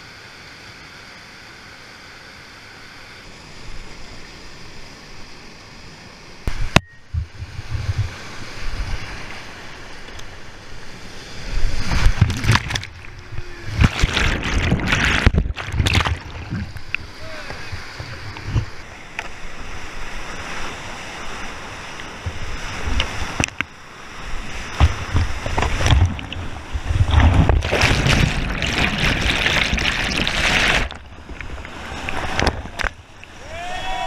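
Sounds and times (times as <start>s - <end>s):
wind striking microphone: 6.5s - 9.0s
whitewater rushing and splashing: 7.4s - 34.0s.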